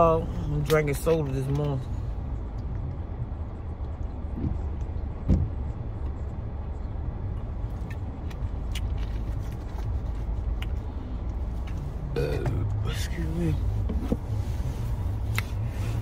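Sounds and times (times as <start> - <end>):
car cabin rumble: 0.0 - 16.0.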